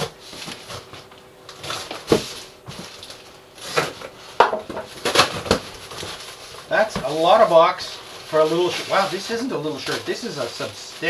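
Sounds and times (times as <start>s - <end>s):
cardboard flaps scraping: 0.0s - 11.0s.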